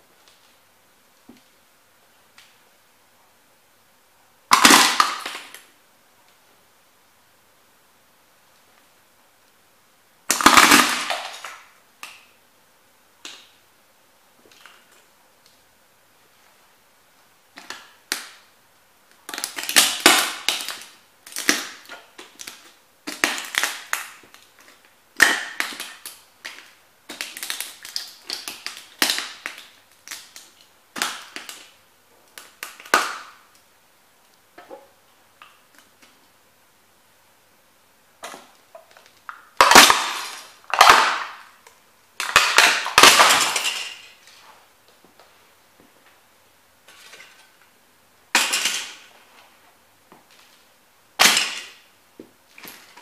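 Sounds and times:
boots crushing small model houses: 39.6 - 41.5, 42.2 - 44.4.

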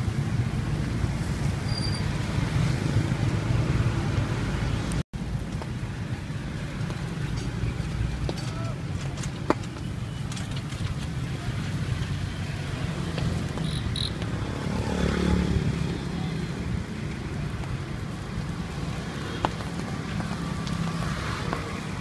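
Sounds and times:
engine rumble of traffic: 0.0 - 22.0
vehicle passing close: 10.3 - 22.0.

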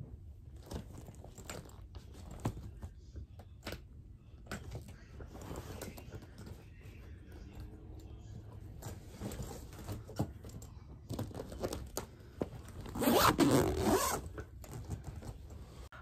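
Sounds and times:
suitcase zipper scraping: 12.8 - 14.4.

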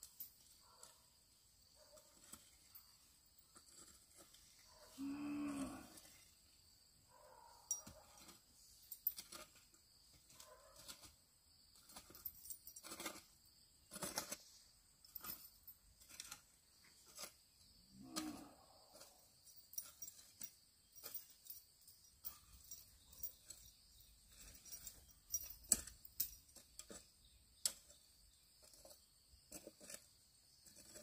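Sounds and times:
farm animal low call: 4.8 - 6.2, 17.9 - 18.8.

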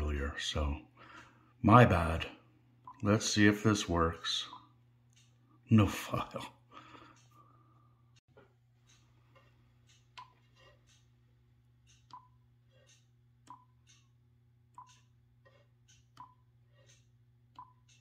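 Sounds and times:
fingertip tapping on screen: 11.8 - 14.1, 14.7 - 18.0.

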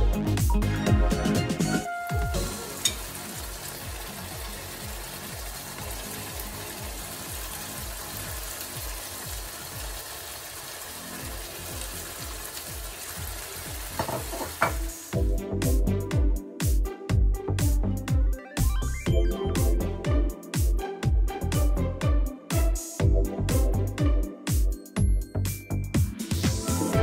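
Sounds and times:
music: 0.0 - 27.0
meat sizzling in a frying pan: 2.4 - 15.2.

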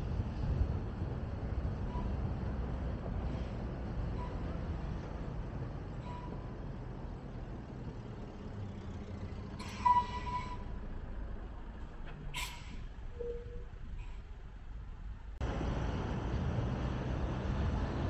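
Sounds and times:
road traffic rumble: 0.0 - 18.0
short loud hiss and squeal: 12.4 - 13.4.

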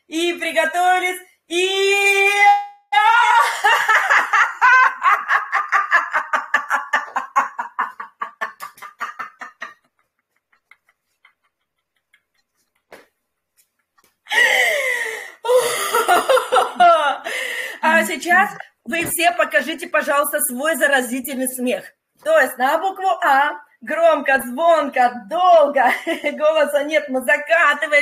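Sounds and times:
woman laughing: 3.0 - 13.0, 13.6 - 18.4.

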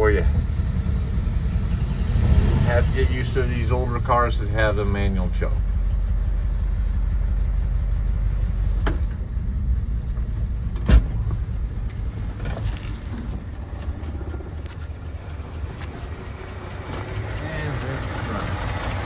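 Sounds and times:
pickup engine idling rough: 0.0 - 19.0
sharp thump: 10.7 - 11.4.

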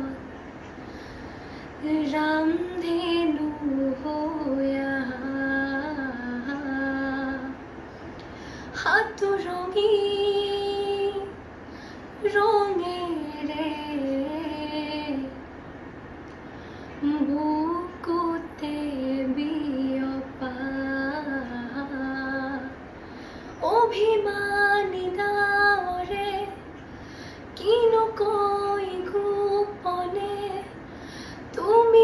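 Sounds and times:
girl singing unaccompanied: 27.6 - 30.8.

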